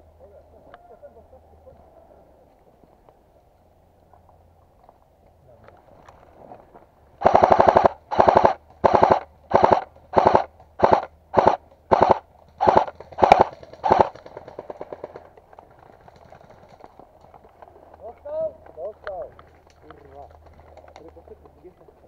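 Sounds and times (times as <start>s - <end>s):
airsoft gun full-auto bursts: 7.2s - 15.3s.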